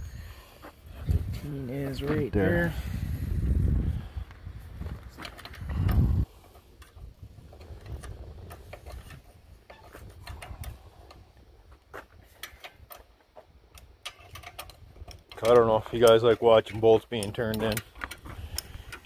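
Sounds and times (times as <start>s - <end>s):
wrench clicking on bolts: 13.7s - 19.0s.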